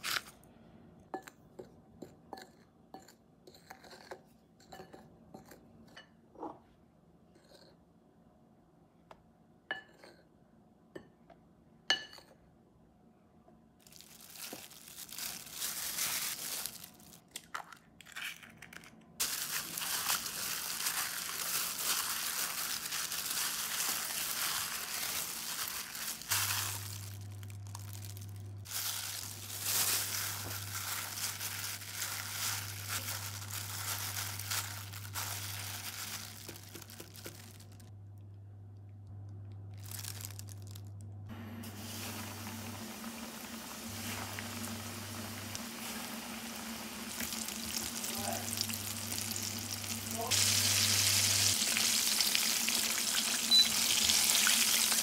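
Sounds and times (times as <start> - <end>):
plastic glove crinkling: 0.0 - 0.4, 13.8 - 17.7, 19.2 - 37.9, 39.7 - 41.0, 41.7 - 55.0
low steady hum: 4.9 - 55.0.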